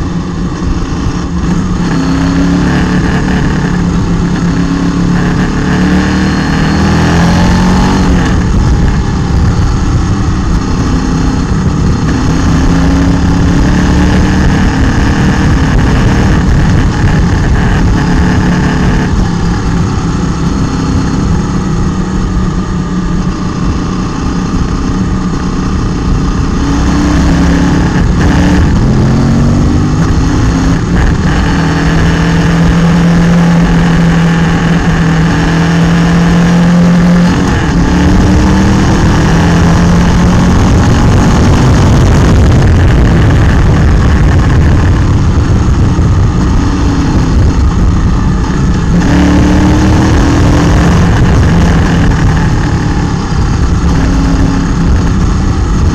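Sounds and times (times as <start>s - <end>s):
motorcycle engine under load: 0.0s - 55.9s
wind and road noise: 0.0s - 55.9s.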